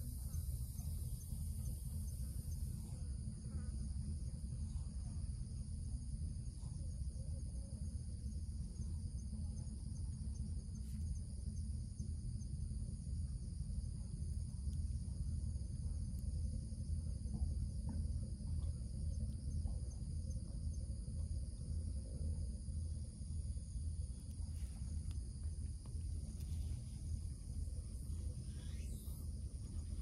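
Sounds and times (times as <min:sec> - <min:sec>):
insect chorus buzzing: 0:00.0 - 0:30.0
low rumble: 0:00.0 - 0:30.0.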